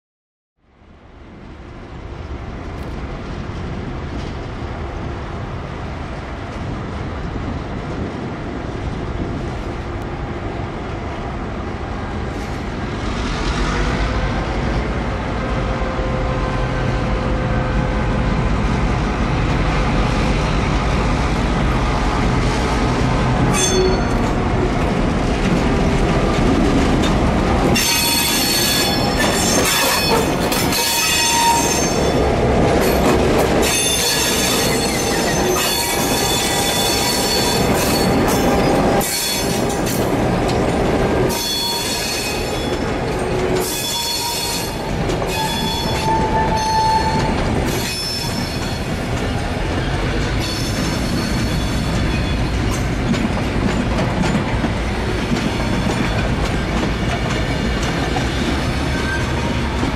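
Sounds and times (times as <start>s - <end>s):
diesel locomotive engines running: 0.9s - 59.9s
high metallic squeal of running gear: 23.5s - 24.3s, 27.8s - 32.2s, 33.6s - 39.6s, 41.3s - 48.9s, 50.4s - 52.9s.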